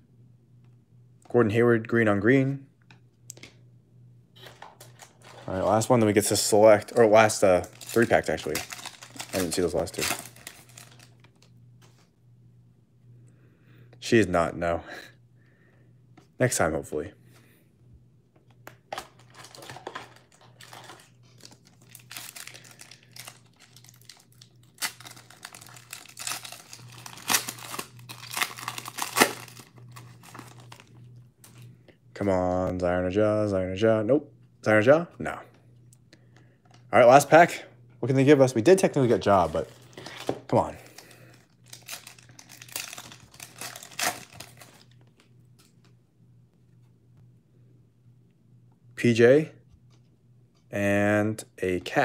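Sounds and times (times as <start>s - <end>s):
plastic wrapper crinkling: 4.4s - 11.5s, 18.9s - 31.6s, 39.3s - 45.7s
wrapper tearing: 6.8s - 11.5s, 19.0s - 30.9s, 39.5s - 45.0s.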